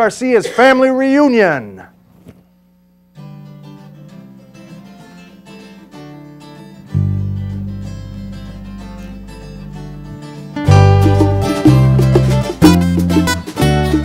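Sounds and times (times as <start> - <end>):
acoustic guitars picking and strumming: 3.1 - 14.0
deep bass notes: 7.0 - 14.0.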